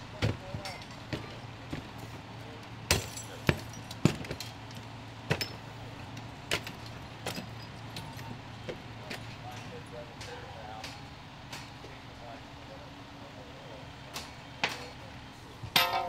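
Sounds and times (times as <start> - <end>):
fire engine humming: 0.0 - 16.0
metallic clanks of gear: 15.7 - 16.0.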